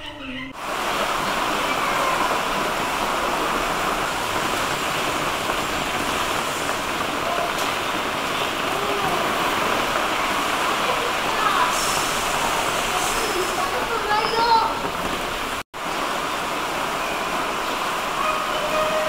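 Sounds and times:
heavy rain on leaves: 0.6s - 19.0s.

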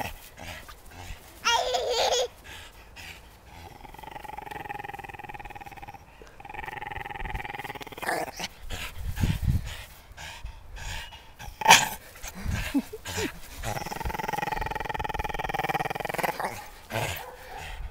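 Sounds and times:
dog growling: 2.5s - 9.4s, 11.4s - 17.7s.

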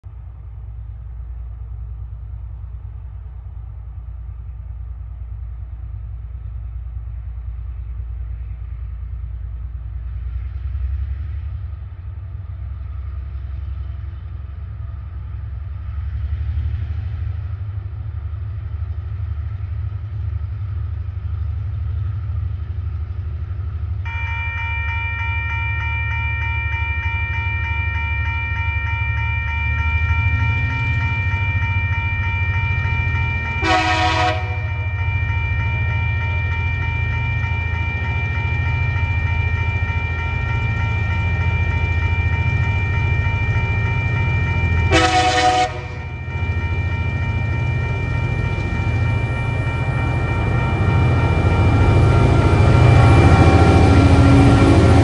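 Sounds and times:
diesel locomotive rumble: 0.0s - 55.0s
multi-tone train horn: 33.5s - 34.9s, 44.8s - 46.2s.

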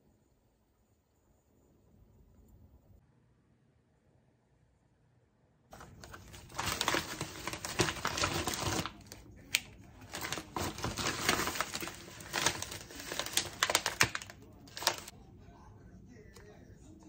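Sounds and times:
plastic packaging crinkling: 5.8s - 15.1s.

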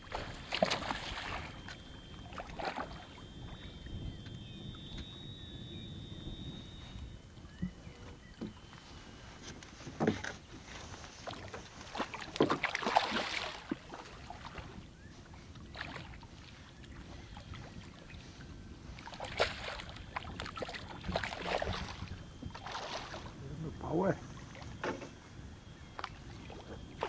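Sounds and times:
water splashing against boat: 0.0s - 27.0s.

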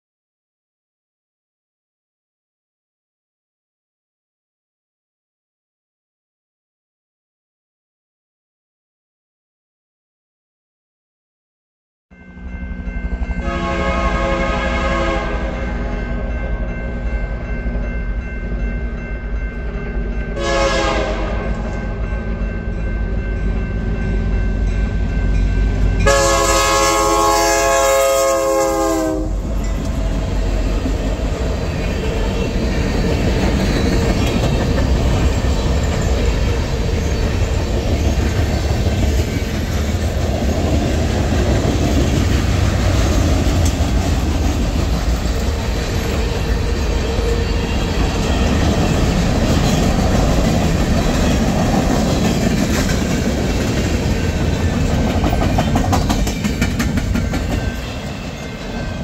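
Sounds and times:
train wheels rumbling on rails: 12.4s - 59.0s
train horn chord: 13.2s - 16.1s, 20.3s - 22.1s, 25.6s - 29.5s.

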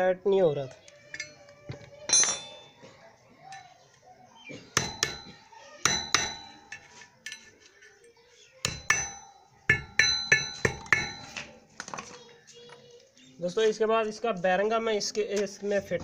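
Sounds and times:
metal tools clinking: 0.8s - 3.8s, 4.7s - 12.8s.

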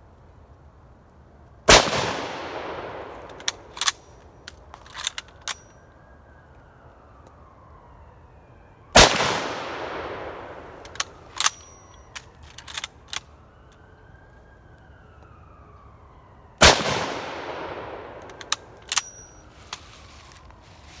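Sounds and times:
rifle shots echoing: 1.7s - 4.0s, 9.0s - 12.0s, 16.6s - 19.2s
rifle bolt metallic clacks: 3.2s - 5.7s, 10.8s - 13.3s, 18.2s - 19.8s.

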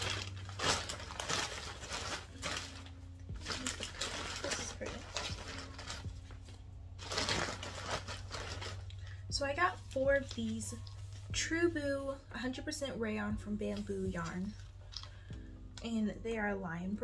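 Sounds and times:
plastic bag rustling: 0.0s - 11.2s.

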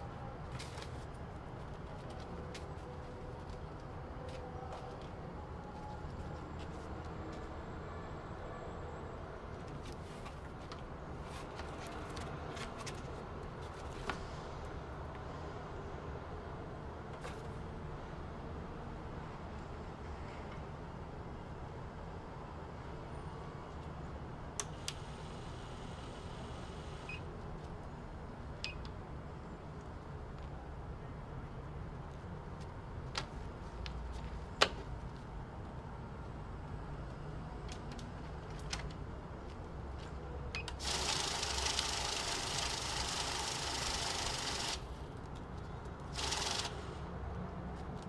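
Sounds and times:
banknotes rustling: 0.4s - 3.8s
banknote counter whirring: 40.8s - 44.9s, 46.1s - 46.8s.

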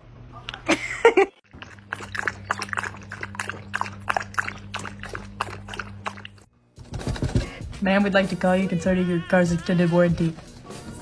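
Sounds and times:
dog lapping from a cup: 1.5s - 6.5s.

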